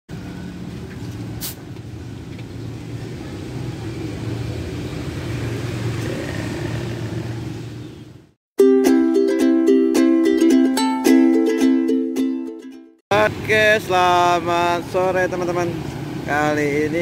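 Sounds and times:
road traffic rumble: 0:00.1 - 0:08.4, 0:13.1 - 0:17.0.

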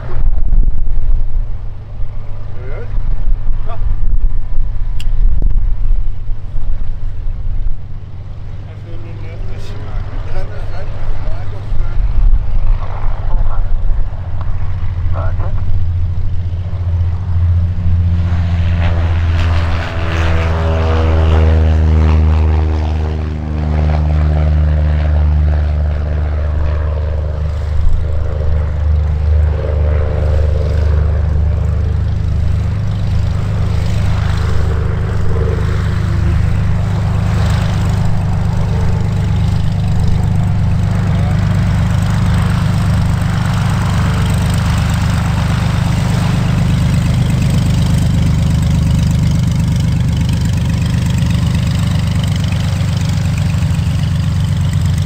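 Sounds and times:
higher engine note: 0:00.0 - 0:55.0
propeller aircraft engine drone: 0:00.0 - 0:55.0.

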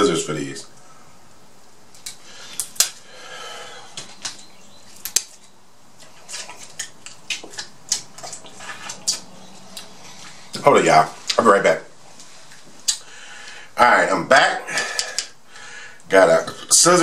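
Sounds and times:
crab shells cracking: 0:01.9 - 0:03.0, 0:04.0 - 0:09.3.

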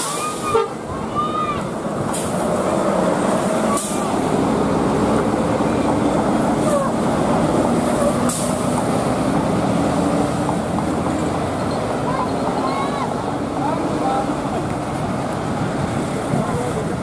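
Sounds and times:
bus engine running: 0:00.0 - 0:17.0
air hiss bursts: 0:08.2 - 0:08.9.

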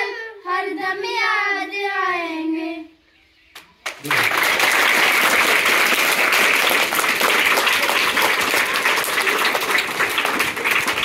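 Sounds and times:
children applauding: 0:03.8 - 0:11.0.

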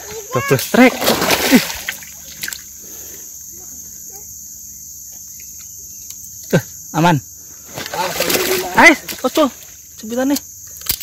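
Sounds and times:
insects droning: 0:00.0 - 0:11.0
shallow water splashes: 0:00.8 - 0:02.7, 0:07.7 - 0:09.6.

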